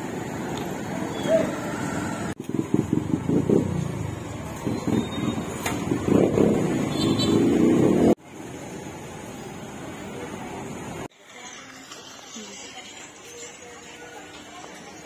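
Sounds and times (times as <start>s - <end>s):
motorbike engines pulsing: 0.0s - 11.1s.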